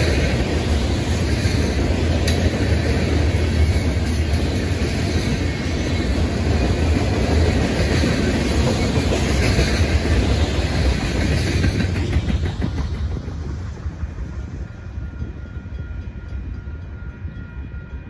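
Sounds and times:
steel train wheels on rails: 0.0 - 18.0.

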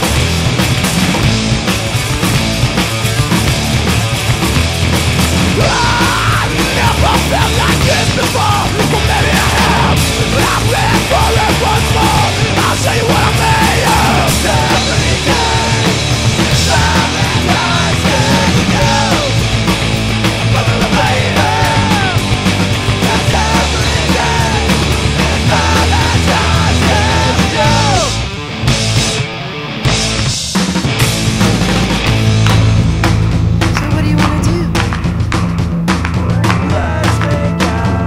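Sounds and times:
punk rock song: 0.0 - 38.0
person singing: 5.6 - 19.4, 20.5 - 28.3, 36.2 - 38.0.

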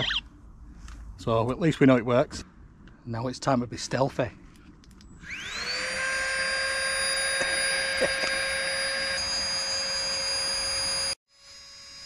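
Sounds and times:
electric air pump whining: 5.2 - 11.2.

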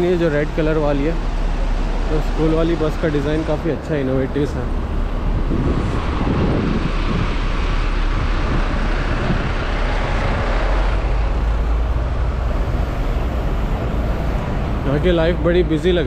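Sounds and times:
road noise: 0.0 - 16.0
vehicle engines rumbling: 0.0 - 16.0.

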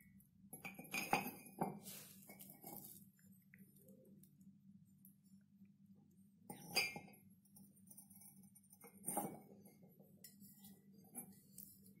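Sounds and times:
ceramic mugs clinking: 0.6 - 3.0, 6.5 - 7.2.

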